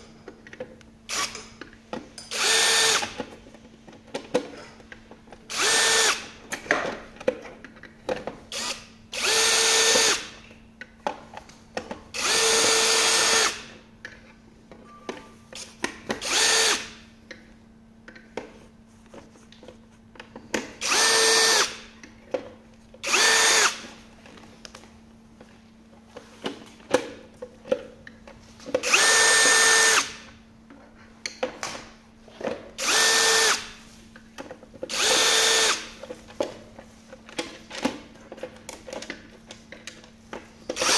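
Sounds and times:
cordless drill whining: 2.3s - 3.2s, 5.5s - 6.2s, 8.5s - 10.3s, 12.2s - 13.7s, 16.2s - 16.9s, 20.8s - 21.8s, 23.0s - 23.8s, 28.8s - 30.2s, 32.8s - 33.8s, 34.9s - 36.0s.

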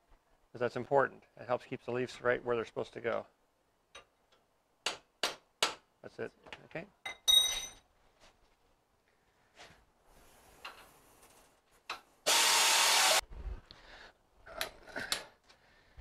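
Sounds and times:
air tool burst: 12.3s - 13.2s.

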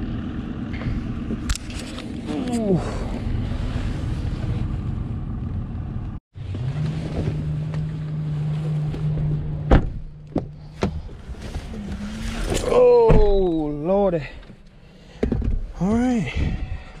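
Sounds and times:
wind rumbling on microphone: 16.3s - 17.0s.

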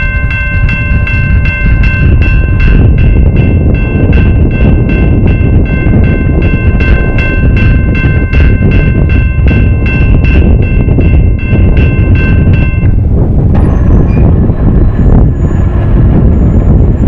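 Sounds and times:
loud low rumble: 0.0s - 17.0s
railroad crossing bell ringing: 0.0s - 17.0s.

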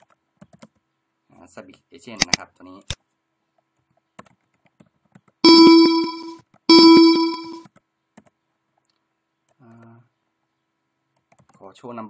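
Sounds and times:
computer alert chime: 5.4s - 7.6s.

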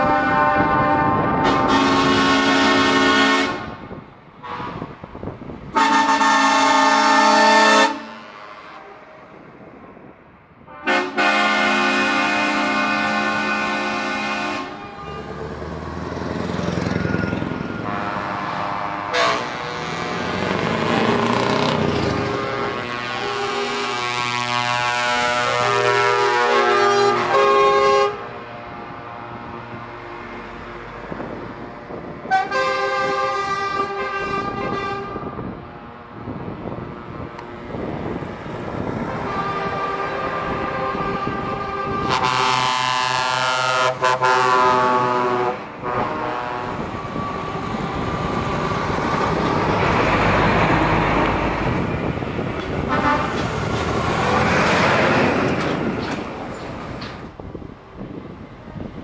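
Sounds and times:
truck air horn blasts: 0.0s - 5.0s, 5.8s - 9.2s, 10.7s - 15.5s, 17.6s - 28.5s, 32.2s - 35.5s, 39.0s - 47.6s, 52.8s - 53.6s
diesel truck engines rumbling: 0.0s - 59.0s
tyres on road: 0.0s - 59.0s.

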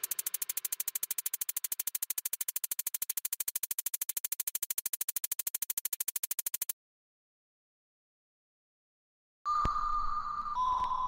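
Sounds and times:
rapid electronic ticking: 0.0s - 6.8s.

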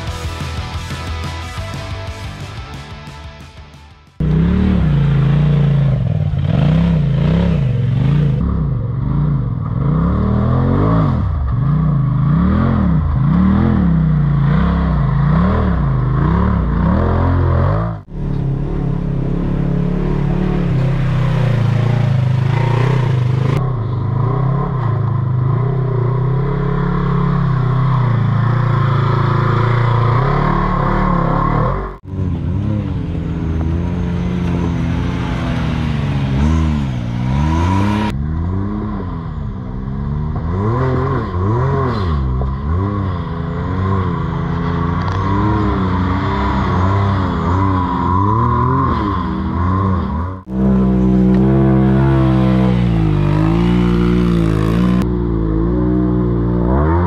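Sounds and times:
off-road vehicle engine revving: 0.0s - 57.0s.

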